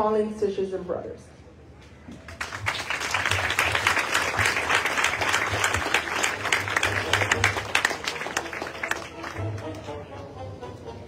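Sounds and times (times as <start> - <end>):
crowd applauding: 2.2 - 10.0.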